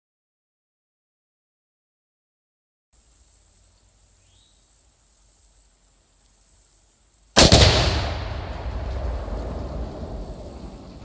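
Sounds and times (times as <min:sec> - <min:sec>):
rifle shot: 0:07.4 - 0:09.7
loud explosion with rumble: 0:07.4 - 0:11.0.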